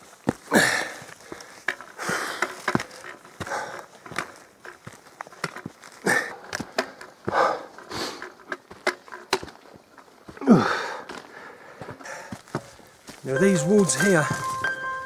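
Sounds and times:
footsteps on path: 0:00.0 - 0:15.0
person breathing hard: 0:00.5 - 0:04.4, 0:06.0 - 0:08.3, 0:10.4 - 0:12.9.

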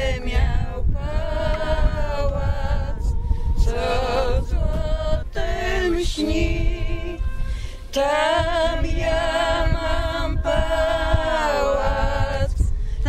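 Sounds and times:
person singing unaccompanied: 0:00.0 - 0:12.8
low rumble: 0:00.0 - 0:13.0.

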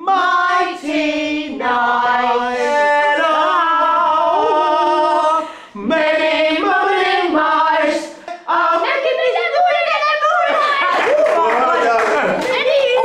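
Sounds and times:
choir singing a cappella: 0:00.0 - 0:09.4.

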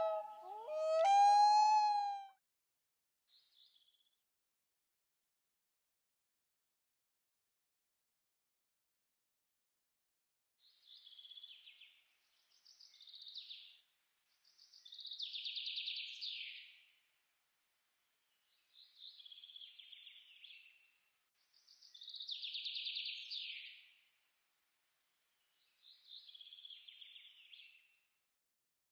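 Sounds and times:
songbird trilling: 0:00.0 - 0:02.2.

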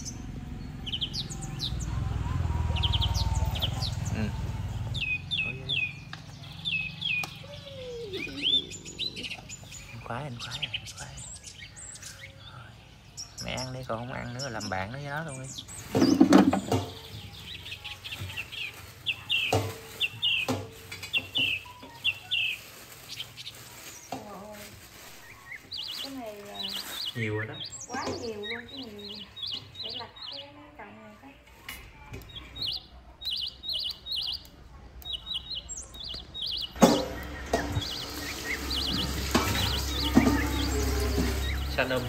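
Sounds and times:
small bird chirping: 0:00.0 - 0:31.2, 0:31.9 - 0:42.0
tap water rushing into steel sink: 0:36.8 - 0:41.4.

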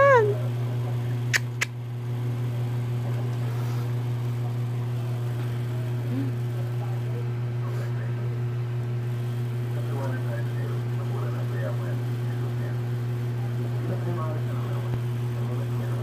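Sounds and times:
sharp clicks: 0:01.3 - 0:01.7.

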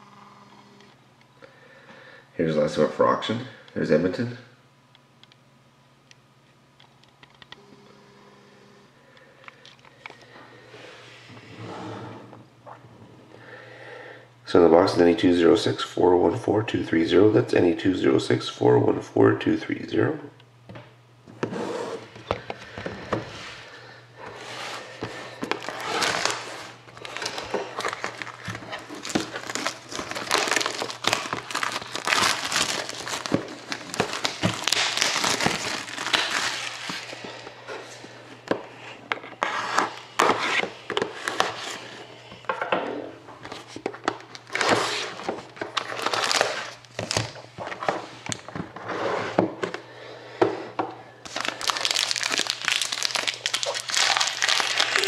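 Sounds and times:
plastic and cardboard crinkling: 0:24.2 - 0:38.2, 0:43.4 - 0:48.8, 0:51.2 - 0:55.0
foil card pack handled: 0:24.4 - 0:37.4, 0:51.2 - 0:55.0.

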